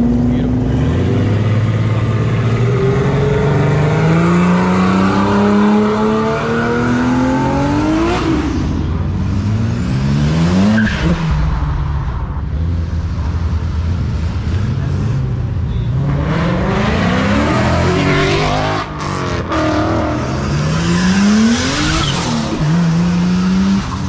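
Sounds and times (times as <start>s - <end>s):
car engine accelerating: 0.0s - 24.0s.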